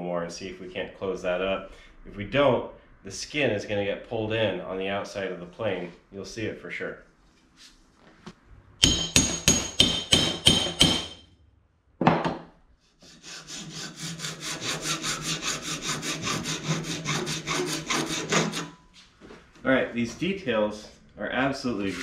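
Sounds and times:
hammer ringing on metal: 0:08.8 - 0:11.3
file rasping on metal: 0:13.0 - 0:18.8.

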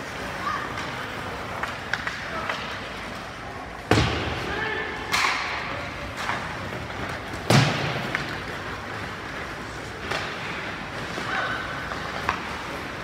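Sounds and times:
echoing thuds and knocks: 0:03.9 - 0:04.4, 0:07.4 - 0:08.3.

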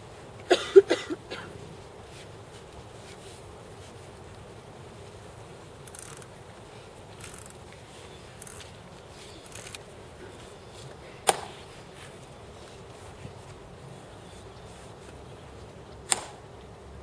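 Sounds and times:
faint footstep scuffs: 0:01.3 - 0:15.8
sharp heel click: 0:11.2 - 0:11.6, 0:16.1 - 0:16.4.

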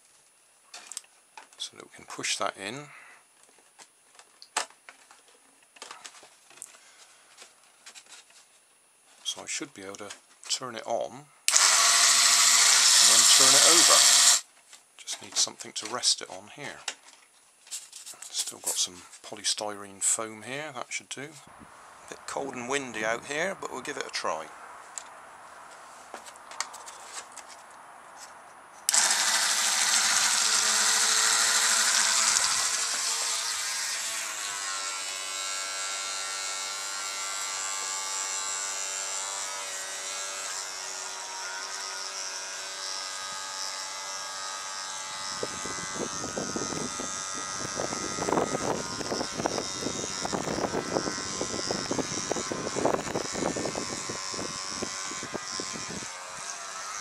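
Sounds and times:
electric toothbrush buzzing: 0:11.5 - 0:14.5, 0:28.9 - 0:57.0
wind buffeting microphone: 0:45.2 - 0:56.5.

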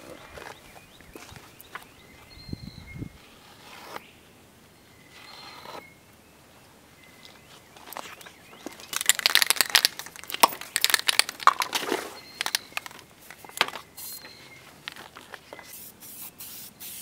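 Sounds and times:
paper pages crinkling: 0:07.9 - 0:15.7.

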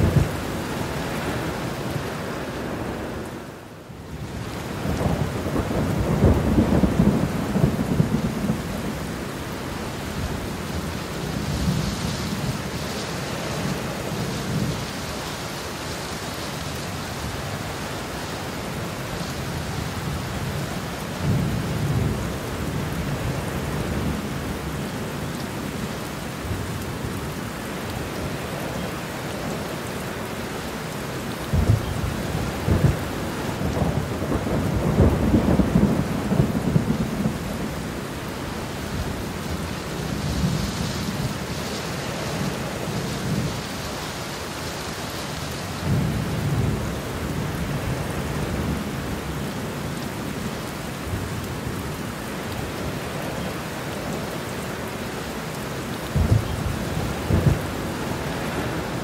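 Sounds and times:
steady rain: 0:00.0 - 0:59.0
thunder rumbling: 0:04.3 - 0:15.0, 0:31.5 - 0:43.7, 0:56.1 - 0:59.0.

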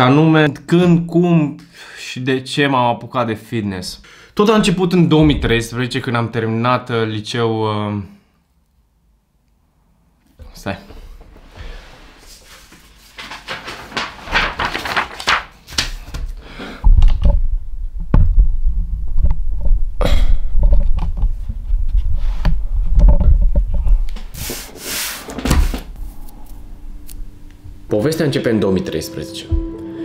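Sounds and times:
heavy low rumbling and bumps: 0:04.6 - 0:06.0, 0:16.9 - 0:24.4
microphone handling knocks and rubbing: 0:04.6 - 0:06.0, 0:16.8 - 0:24.6.

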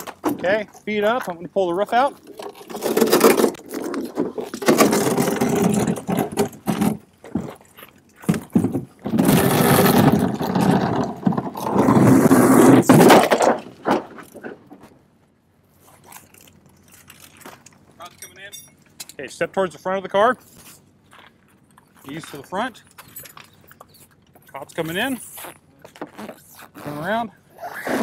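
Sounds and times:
metal scraping on pavement: 0:00.0 - 0:14.9.

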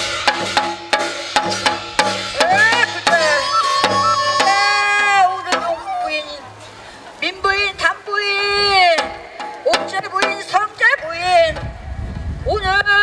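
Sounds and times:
drum strokes: 0:00.0 - 0:06.8
high wind instrument melody: 0:02.3 - 0:06.7.

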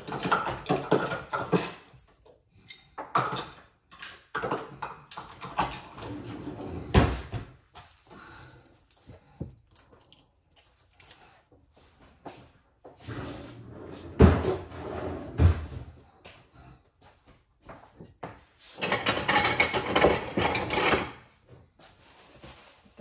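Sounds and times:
kitchen items clattering on counter: 0:00.0 - 0:07.6, 0:18.0 - 0:21.3.

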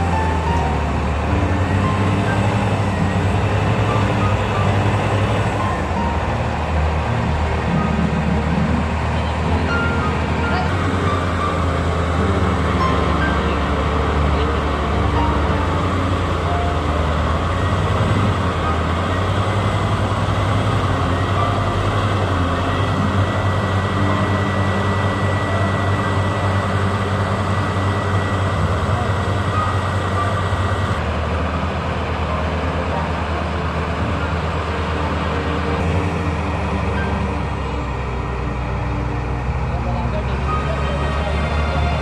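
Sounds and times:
diesel engine running under load: 0:00.0 - 0:42.0.

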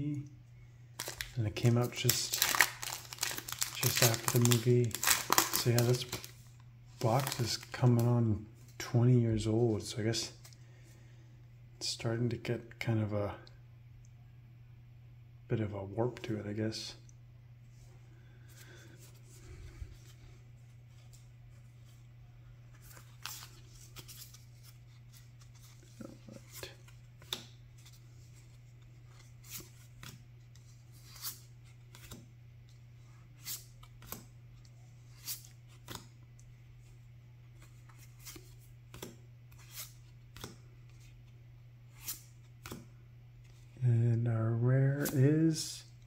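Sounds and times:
steady low hum: 0:00.0 - 0:46.0
trading cards flipped by hand: 0:33.4 - 0:34.3, 0:35.1 - 0:36.1, 0:37.6 - 0:41.3, 0:41.9 - 0:42.9.

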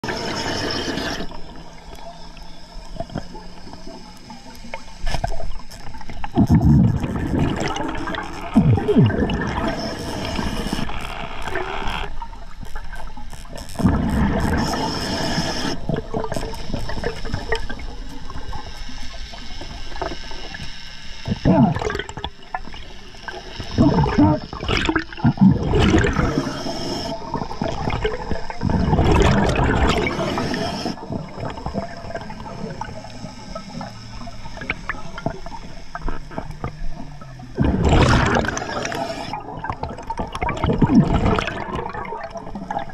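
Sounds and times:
underwater hiss: 0:00.0 - 0:11.2, 0:13.4 - 0:37.0, 0:37.6 - 0:39.8
diver's bubbles gurgling: 0:05.2 - 0:18.6, 0:21.3 - 0:23.0, 0:23.7 - 0:42.9.

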